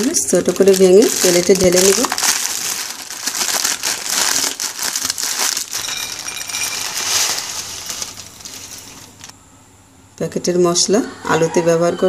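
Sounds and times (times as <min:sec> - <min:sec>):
dry noodles crackling: 0:00.0 - 0:09.3
plastic packet crinkling: 0:00.0 - 0:09.3.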